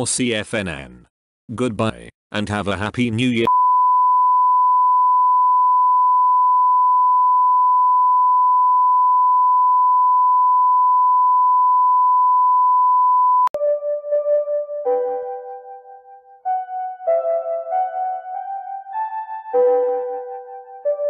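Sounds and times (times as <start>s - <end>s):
soft music with held notes: 13.6s - 21.0s.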